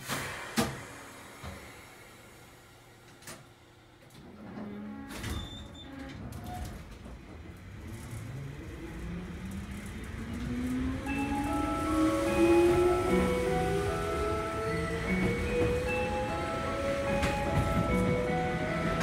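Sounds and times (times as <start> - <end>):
train wheels rumbling: 5.9 - 19.0.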